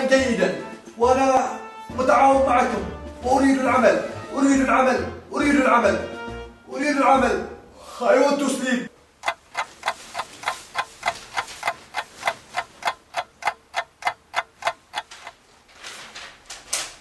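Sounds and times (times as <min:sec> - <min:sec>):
clock ticking: 0:09.0 - 0:15.4.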